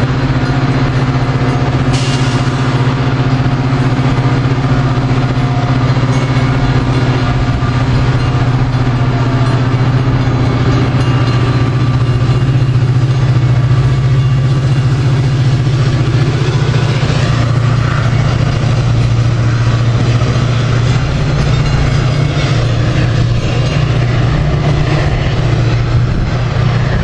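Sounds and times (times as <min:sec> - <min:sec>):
diesel locomotive engine idling: 0:00.0 - 0:27.0.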